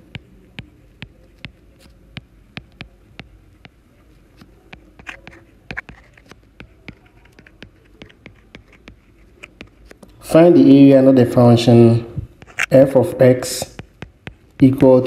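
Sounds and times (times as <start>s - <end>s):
stylus tapping on tablet screen: 0.0s - 10.2s, 12.2s - 15.0s
stylus scratchy strokes: 4.0s - 10.0s.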